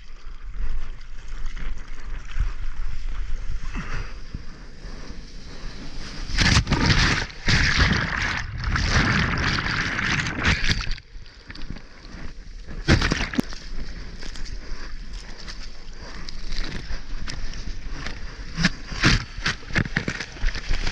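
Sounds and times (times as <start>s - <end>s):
sharp splash: 6.3s - 11.0s
water sloshing and splashing: 6.3s - 12.2s, 12.8s - 14.5s, 15.1s - 20.9s.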